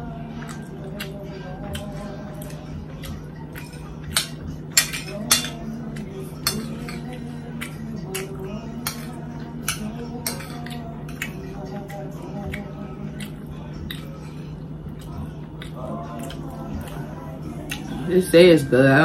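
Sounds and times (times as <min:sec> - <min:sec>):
fork clinking on ceramic plate: 0:03.6 - 0:05.8, 0:06.4 - 0:11.3.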